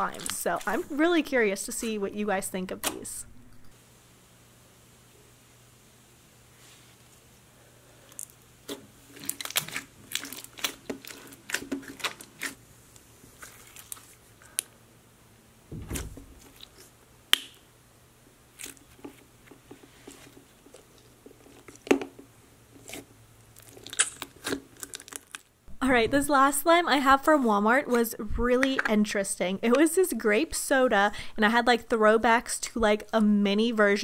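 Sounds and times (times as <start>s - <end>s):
slime popping and crackling: 9.2s - 12.6s, 23.6s - 25.5s
dull thump: 15.7s - 16.4s.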